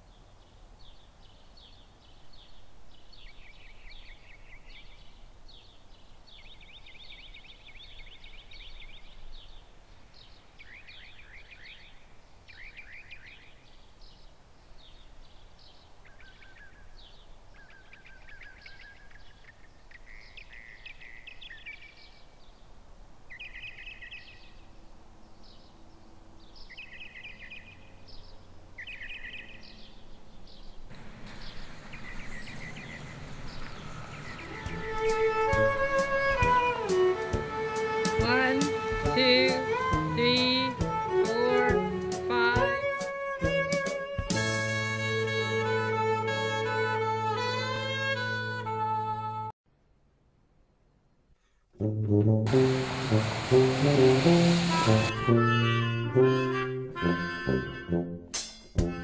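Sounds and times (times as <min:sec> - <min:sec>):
small birds chirping and trilling: 0:00.0 - 0:22.7, 0:25.4 - 0:35.6.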